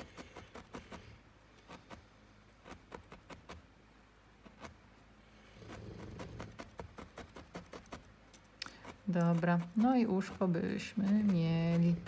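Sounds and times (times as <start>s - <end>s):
felting needle ticking into wool: 5.7s - 12.0s.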